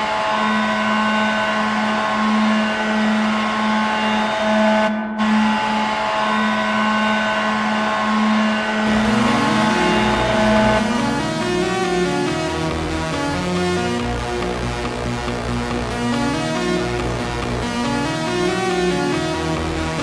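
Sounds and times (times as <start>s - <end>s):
goal horn blaring: 0.0s - 12.8s
music: 0.0s - 20.0s.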